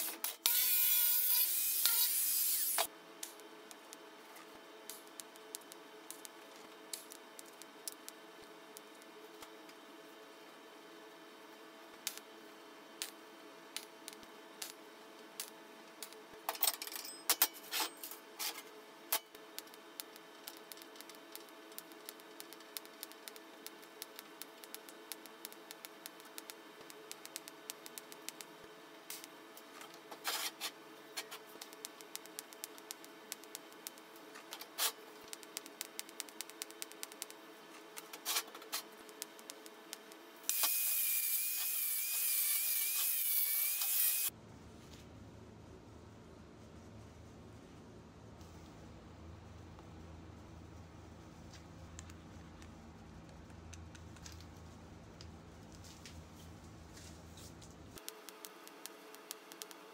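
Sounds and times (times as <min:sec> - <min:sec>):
low steady shop hum: 0:00.0 - 0:59.9
scattered clicks and taps: 0:19.1 - 0:29.7, 0:31.2 - 0:37.4, 0:58.0 - 0:59.9
angle grinder grinding steel: 0:40.5 - 0:44.3.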